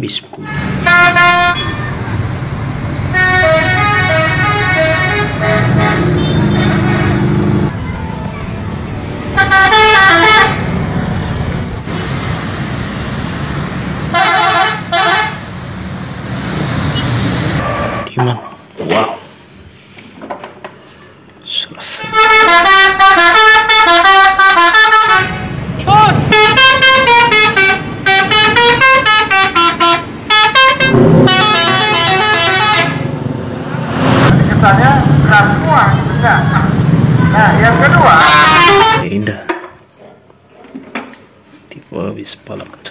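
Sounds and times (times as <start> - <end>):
bus engine: 0.0 - 18.2, 22.2 - 39.2
road traffic noise: 0.0 - 42.9
bus musical horn: 0.4 - 2.0, 3.1 - 10.8, 14.1 - 15.5, 22.0 - 25.6, 26.2 - 33.2, 37.2 - 39.1
burst of noise: 30.8 - 32.4.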